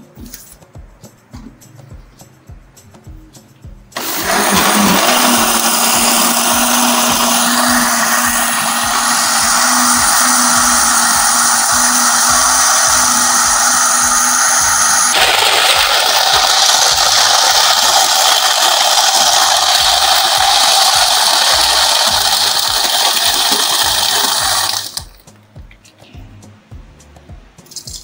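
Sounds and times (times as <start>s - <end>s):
blender running: 4.0s - 25.1s.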